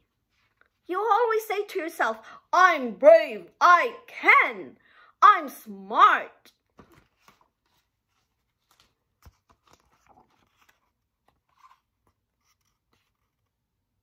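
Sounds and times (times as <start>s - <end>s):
paper rustling: 6.6s - 14.0s.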